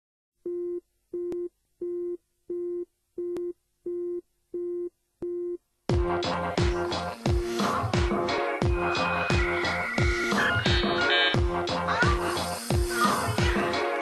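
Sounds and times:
electronic music with bass sweeps: 5.9s - 14.0s.

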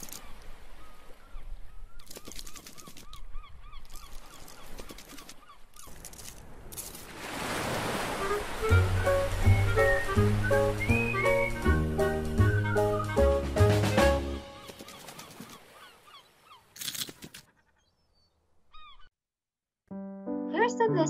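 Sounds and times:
wave wash: 7.1s - 12.3s
music jingle: 19.9s - 21.0s.

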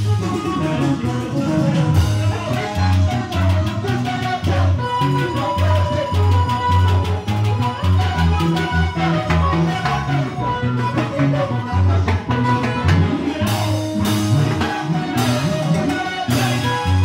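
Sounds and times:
live latin dance band: 0.0s - 17.0s.

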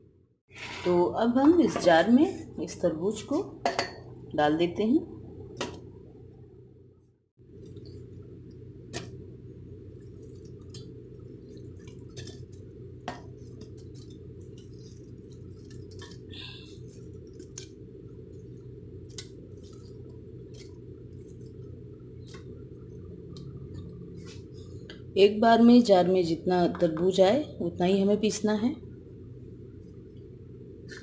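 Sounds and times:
low hum: 0.0s - 31.0s.

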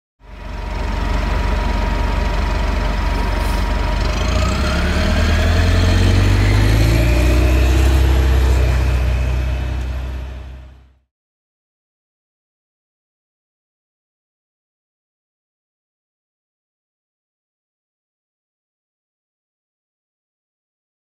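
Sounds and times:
bus engine accelerating: 0.2s - 11.1s.

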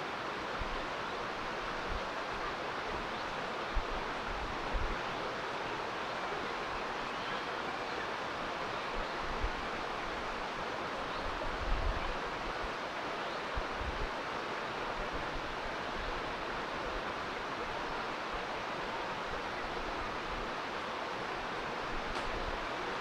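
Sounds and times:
stream water flowing: 0.0s - 23.0s.

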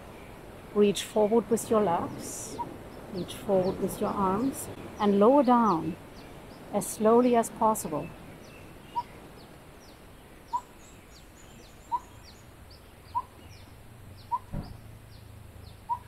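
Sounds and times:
soft thump: 14.5s - 14.9s.

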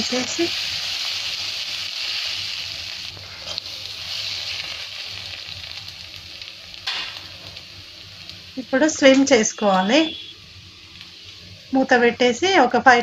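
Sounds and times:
egg and onion sizzling in oil: 0.0s - 13.0s.

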